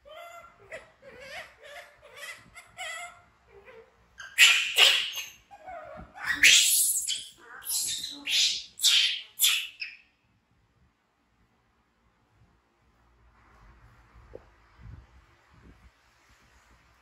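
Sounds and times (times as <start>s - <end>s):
baby monkey screaming: 0.0s - 10.0s.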